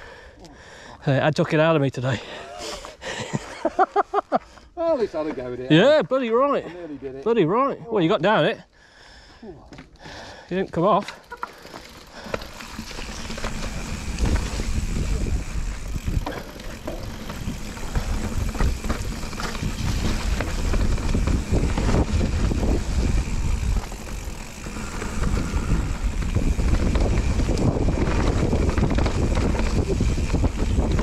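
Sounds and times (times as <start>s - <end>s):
tyres rolling over earth and leaves: 10.6s - 31.0s
bike rattling and knocking: 10.8s - 31.0s
wind rumble on microphone: 13.2s - 31.0s.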